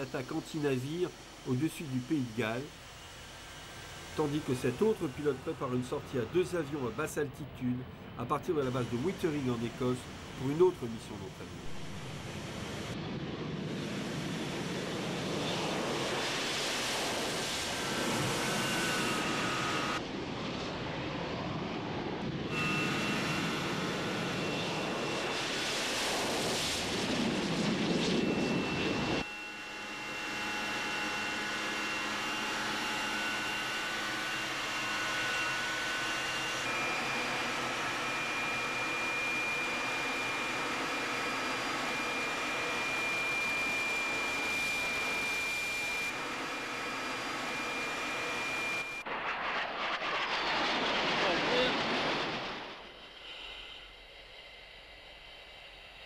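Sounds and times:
jet engine roar: 0:00.0 - 0:56.0
thin high engine whine: 0:00.0 - 0:56.0.

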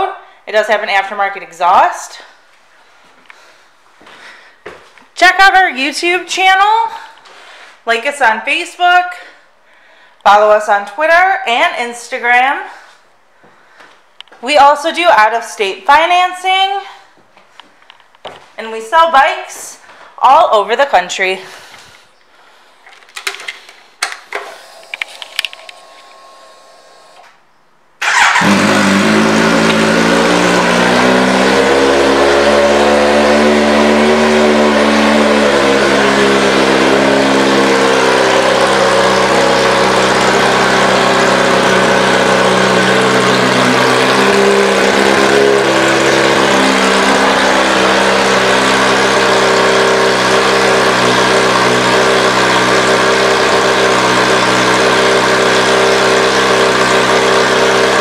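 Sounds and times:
clicks: 0:22.9 - 0:26.2
motorcycle engine starting and idling: 0:23.2 - 0:27.4, 0:28.0 - 0:58.0.

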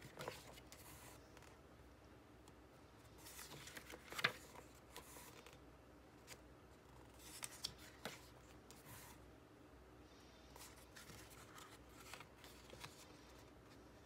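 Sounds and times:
book pages turning: 0:00.0 - 0:01.6, 0:03.1 - 0:05.6, 0:06.2 - 0:09.2, 0:10.6 - 0:13.6.

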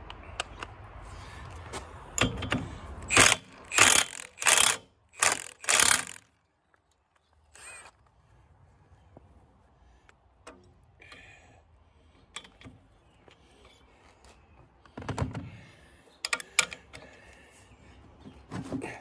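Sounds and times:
metal tool clicks and taps: 0:16.2 - 0:17.0.

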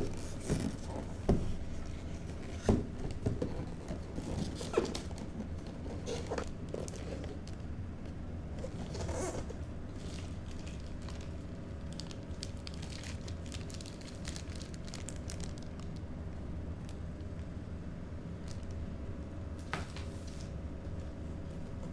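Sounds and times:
steady low hum: 0:00.0 - 0:21.9
plastic bag crinkling: 0:03.6 - 0:07.7, 0:08.6 - 0:16.1.

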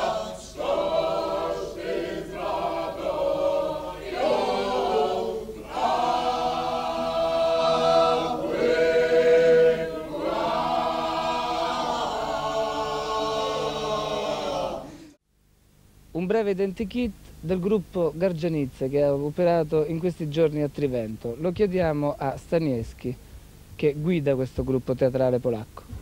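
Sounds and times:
voices singing a cappella: 0:00.0 - 0:15.2.

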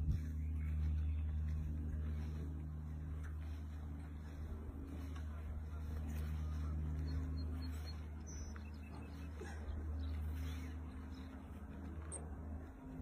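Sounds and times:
engine idling hum: 0:00.0 - 0:13.0.

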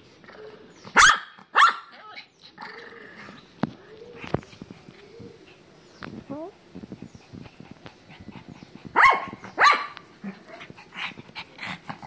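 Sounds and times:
dog barking: 0:01.0 - 0:01.9, 0:09.0 - 0:10.0.

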